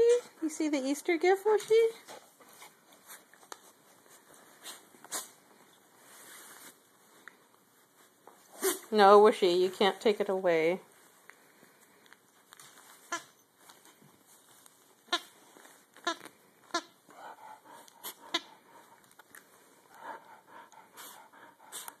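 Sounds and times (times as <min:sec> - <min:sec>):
soft chewing and rustling: 0:01.2 - 0:22.0
chew toy squeaking: 0:13.0 - 0:13.4, 0:15.0 - 0:15.4, 0:16.0 - 0:17.0, 0:18.0 - 0:18.6.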